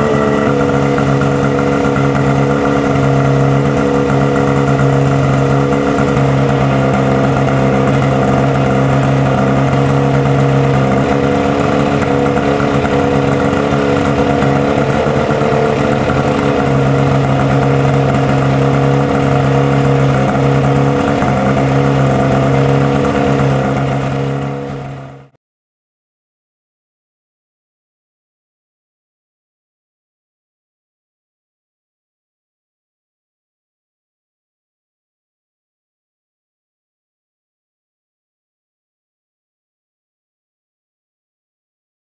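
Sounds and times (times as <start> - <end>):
pump engine running steadily: 0.0 - 25.4.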